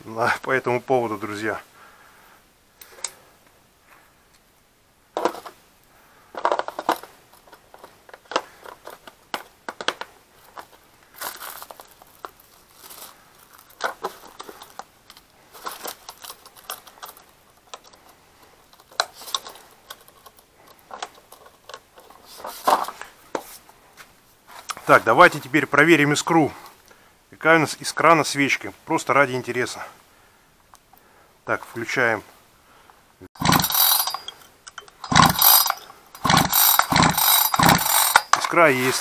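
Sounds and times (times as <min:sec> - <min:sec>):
metal fittings rattling in plastic case: 0:06.3 - 0:23.0, 0:33.4 - 0:39.0.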